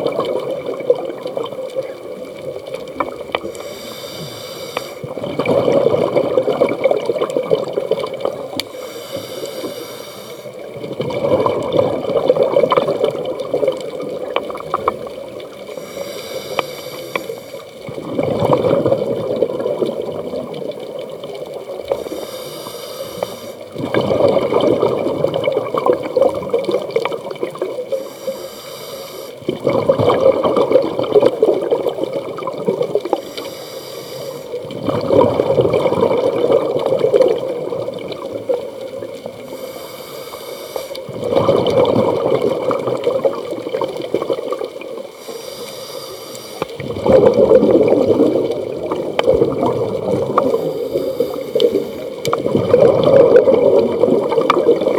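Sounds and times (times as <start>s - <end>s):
exhaled bubbles gurgling: 0.0s - 54.9s
regulator hiss on inhale: 3.4s - 5.2s, 8.6s - 10.7s, 15.6s - 17.8s, 21.8s - 23.8s, 27.9s - 29.5s, 33.0s - 34.7s, 39.4s - 41.1s, 45.0s - 46.8s, 50.4s - 52.3s.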